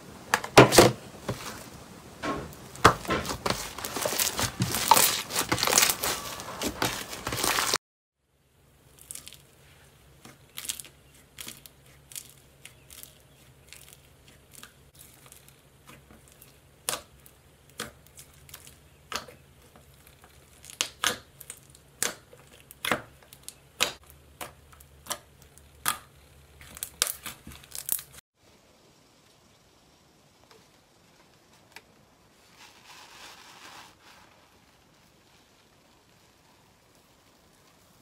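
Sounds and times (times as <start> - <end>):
slime crackling and popping: 2.8 - 7.8, 8.9 - 9.5, 10.2 - 28.2.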